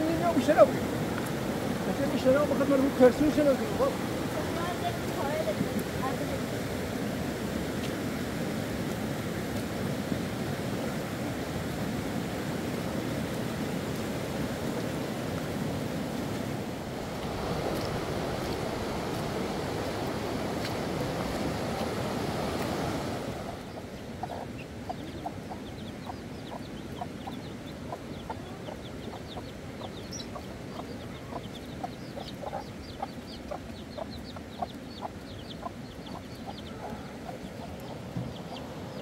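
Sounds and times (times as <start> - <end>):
chickens clucking: 17.0 - 39.0.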